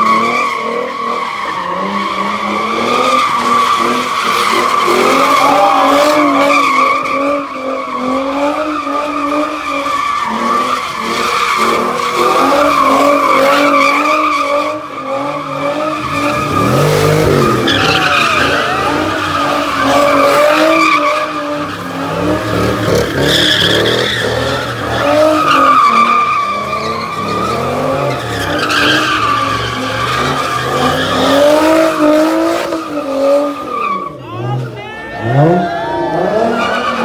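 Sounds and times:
car engines revving: 0.0s - 37.0s
tyre squeal: 8.7s - 31.7s.

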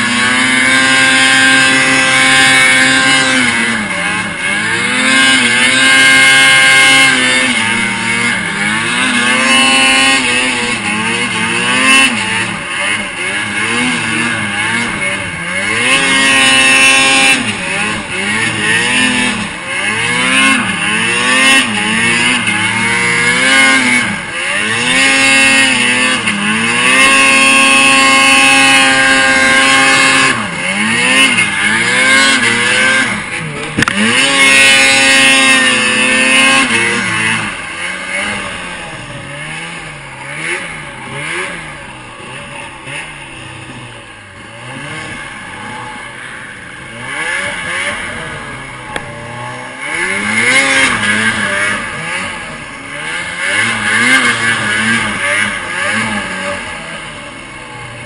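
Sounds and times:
snowmobile engine revving: 0.0s - 58.0s.

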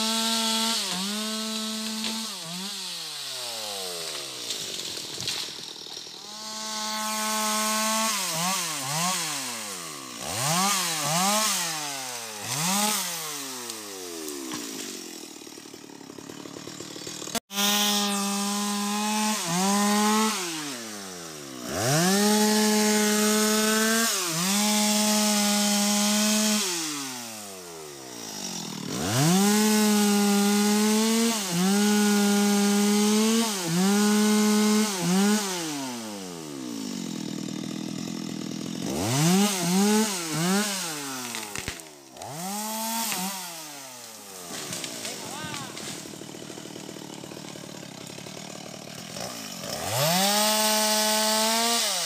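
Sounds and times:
chainsaw revving and cutting wood: 0.0s - 52.0s.

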